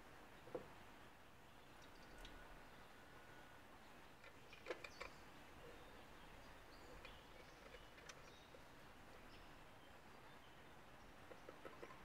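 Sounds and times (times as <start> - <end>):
faint clicks and squeaks: 4.2 - 9.5, 11.2 - 12.0.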